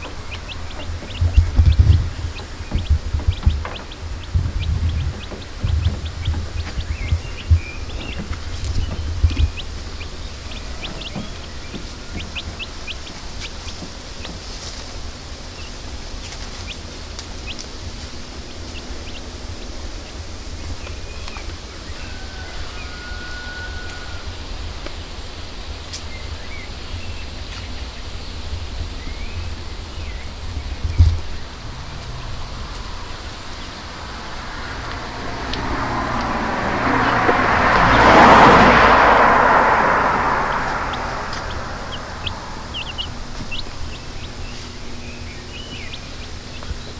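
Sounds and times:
small birds chirping: 0:00.0 - 0:46.9
wind rumble on microphone: 0:00.0 - 0:46.9.

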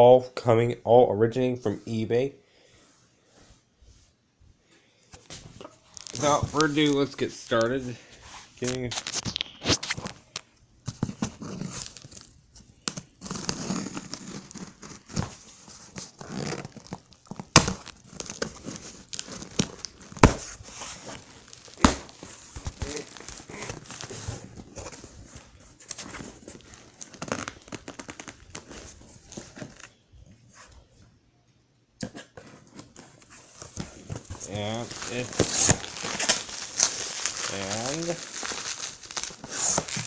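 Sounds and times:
cardboard crinkling and rustling: 0:05.2 - 0:30.8, 0:32.1 - 0:40.0
packing tape tearing: 0:05.9 - 0:07.6, 0:11.0 - 0:25.0, 0:25.9 - 0:29.8, 0:33.6 - 0:40.0.

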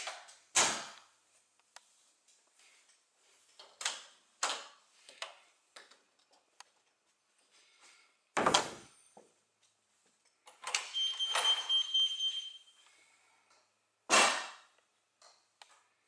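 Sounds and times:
footsteps: 0:01.3 - 0:03.6.

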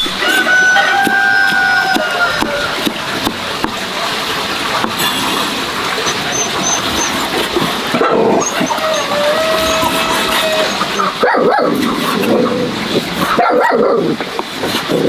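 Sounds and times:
steady noisy background: 0:00.0 - 0:15.0
cleaver chopping on wooden board: 0:00.3 - 0:03.8
dog whining: 0:08.0 - 0:11.8.

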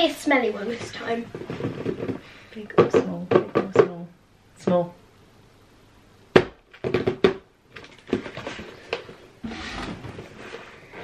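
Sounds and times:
knocks on cardboard box: 0:06.4 - 0:07.4.

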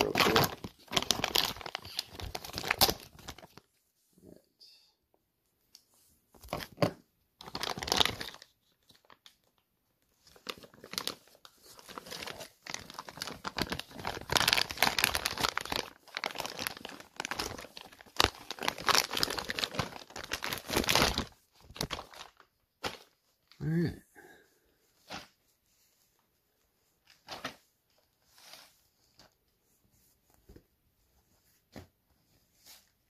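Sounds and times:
plastic packaging crinkling and tearing: 0:00.0 - 0:03.7, 0:06.4 - 0:09.6, 0:10.2 - 0:23.3.

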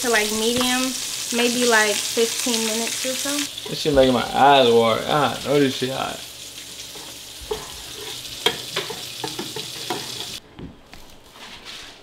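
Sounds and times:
food sizzling in a pan: 0:00.0 - 0:10.4
utensil knocking on pan: 0:07.0 - 0:10.4.

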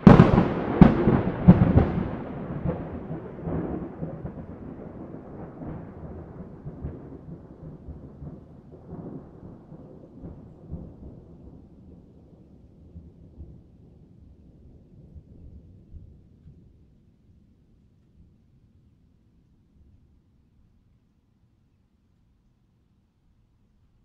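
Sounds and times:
thunder cracking and rumbling: 0:00.0 - 0:17.0.

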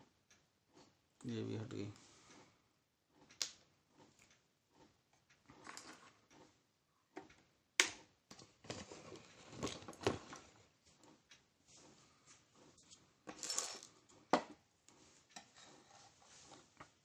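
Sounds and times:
rustling handling noise: 0:08.4 - 0:11.0.

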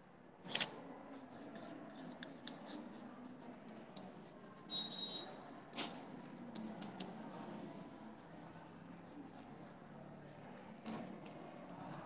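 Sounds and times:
chalk scratching on blackboard: 0:00.5 - 0:05.0, 0:05.8 - 0:08.1.

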